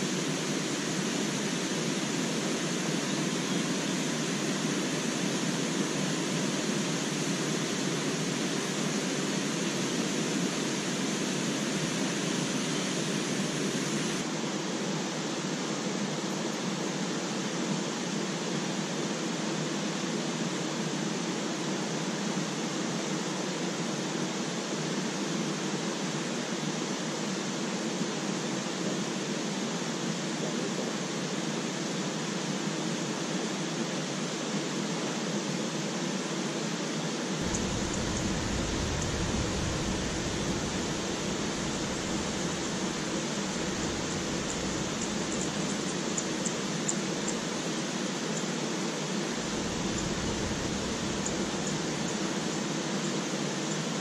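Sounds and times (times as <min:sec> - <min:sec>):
steady rushing noise: 0:37.2 - 0:54.0.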